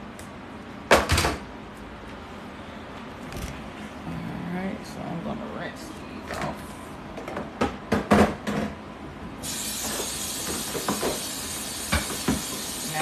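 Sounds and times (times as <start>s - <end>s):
faucet water running onto plastic: 9.4s - 13.0s.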